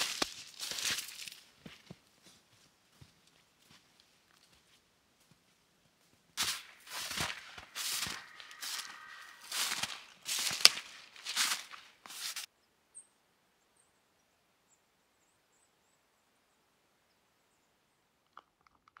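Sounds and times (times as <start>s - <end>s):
footsteps crunching in snow: 0.0s - 12.5s.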